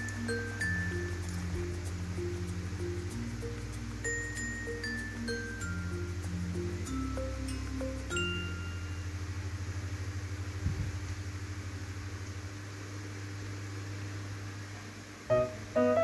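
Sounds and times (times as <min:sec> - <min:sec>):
toy fan motor humming: 0:00.0 - 0:10.0.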